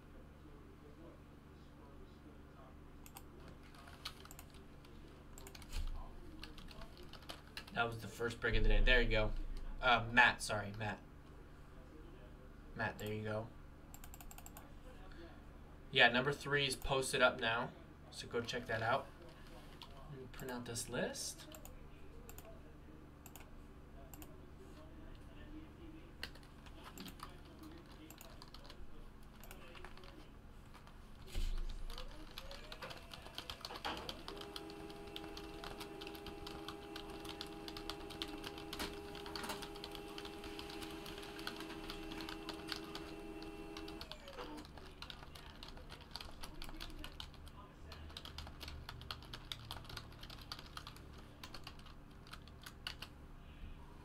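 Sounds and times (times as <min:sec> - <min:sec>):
keyboard typing: 0:03.0 - 0:07.8, 0:13.9 - 0:14.6, 0:26.2 - 0:30.9, 0:31.6 - 0:53.1
laser printer humming: 0:32.2 - 0:45.1.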